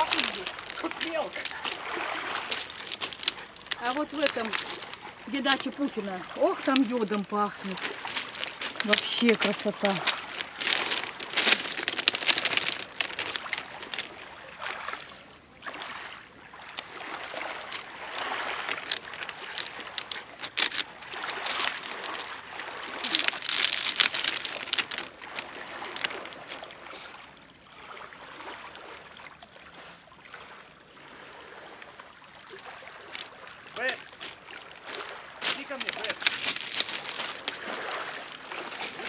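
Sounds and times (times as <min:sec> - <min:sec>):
small waves lapping and splashing: 0:00.0 - 0:39.0.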